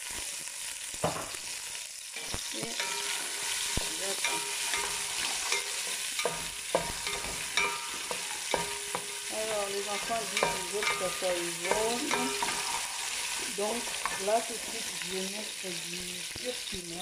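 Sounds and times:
onions sizzling in oil: 0:00.0 - 0:17.0
wooden spoon scraping pot: 0:09.9 - 0:15.0.

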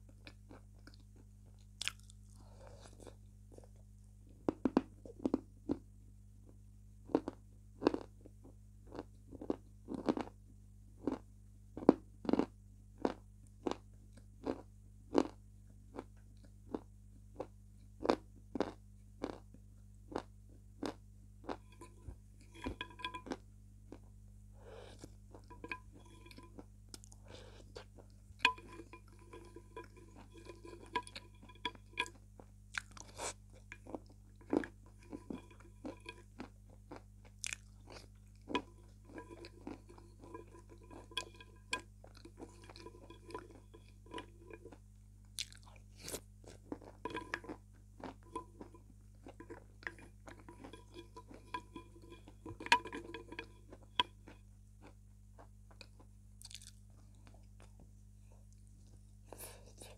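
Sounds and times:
wet chewing: 0:24.6 - 0:44.8, 0:45.4 - 0:57.7.

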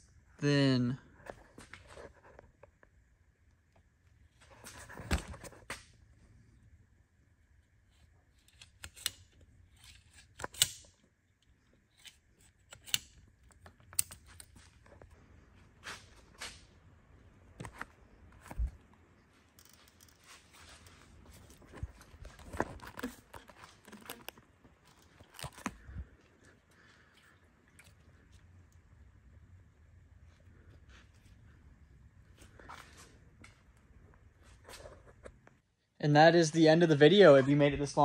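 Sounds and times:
pliers clicking and knocking: 0:08.4 - 0:11.0, 0:11.9 - 0:14.6.

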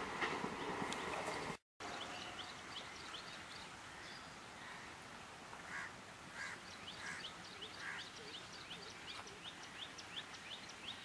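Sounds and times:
small birds chirping: 0:05.8 - 0:11.0.

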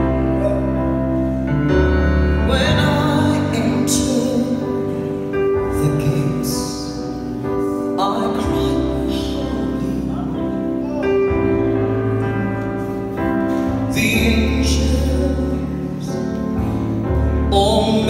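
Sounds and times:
electronic keyboard: 0:00.0 - 0:18.0
woman singing lead: 0:02.3 - 0:07.1, 0:12.1 - 0:16.5.

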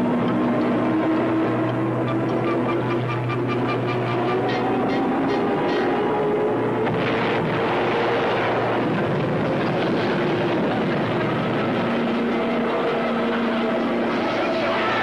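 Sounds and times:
aircraft engine drone: 0:00.0 - 0:15.0.

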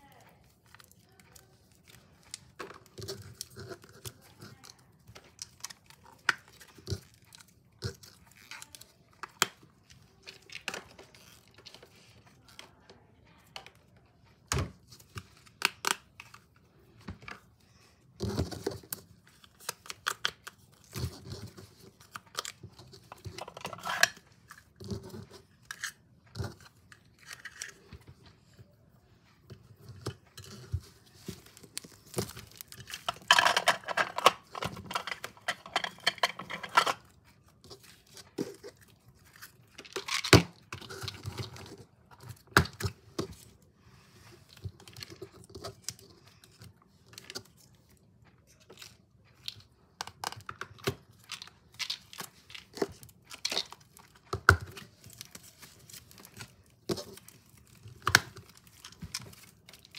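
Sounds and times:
plastic packaging crinkling and tearing: 0:29.8 - 0:42.6, 0:48.7 - 0:59.9.

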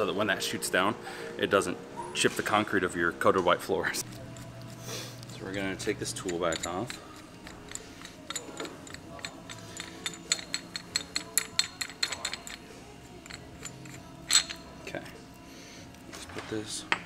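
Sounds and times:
light metallic clicks and clinks: 0:04.0 - 0:15.0.

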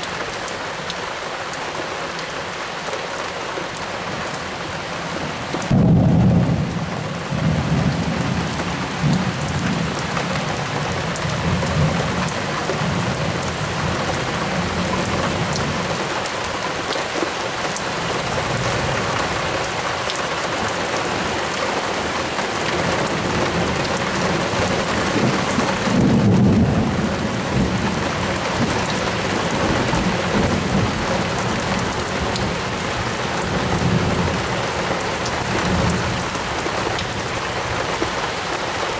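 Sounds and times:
heavy rain falling: 0:00.0 - 0:38.9
thunder rumbling: 0:05.6 - 0:15.9, 0:22.7 - 0:34.5.

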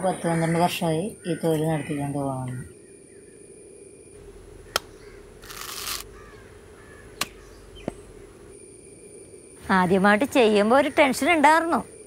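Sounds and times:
crows cawing faintly: 0:00.0 - 0:03.4, 0:04.6 - 0:08.0
coconut husk clicks: 0:04.7 - 0:06.1.

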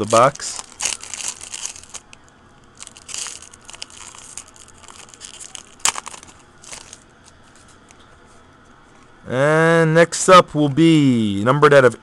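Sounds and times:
foil sharp crackle: 0:00.0 - 0:07.8
foil wrapper crinkling and tearing: 0:00.0 - 0:07.8.

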